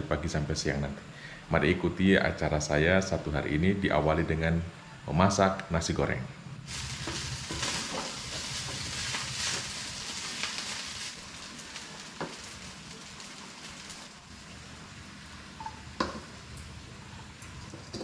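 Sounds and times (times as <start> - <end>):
rice sizzling in a frying pan: 6.6 - 18.0.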